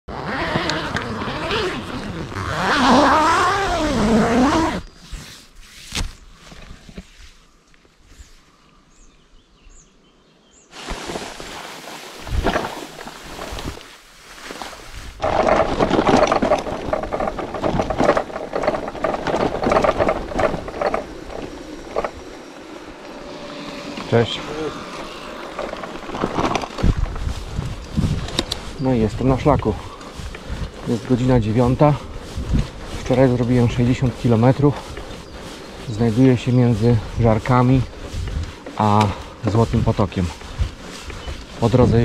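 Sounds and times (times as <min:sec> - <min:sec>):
tyres rolling on grass: 0:10.7 - 0:42.0
bicycle rattling and clicking: 0:15.2 - 0:42.0.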